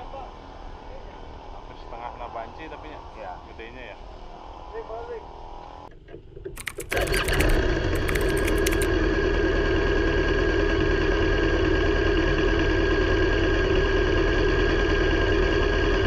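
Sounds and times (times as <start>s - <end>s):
sharp clicks: 6.6s - 8.9s.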